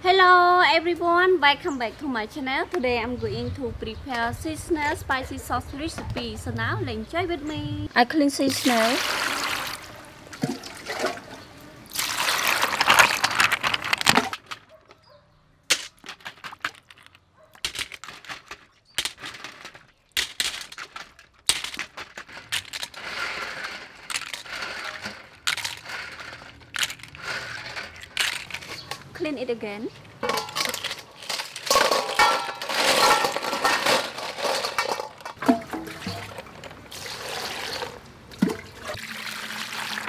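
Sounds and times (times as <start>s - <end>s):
water splashing into a bowl: 8.5s - 13.1s, 35.4s - 40.0s
shells clattering in a metal colander: 30.2s - 35.4s.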